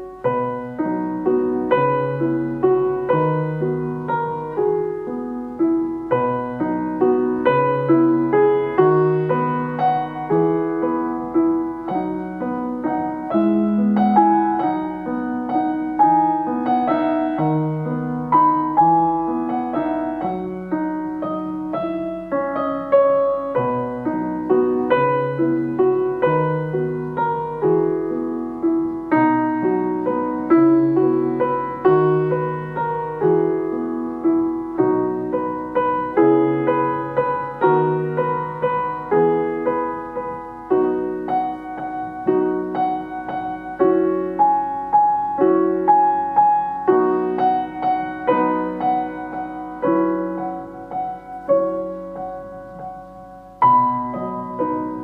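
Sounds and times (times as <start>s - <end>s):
gentle piano music: 0.0s - 55.0s.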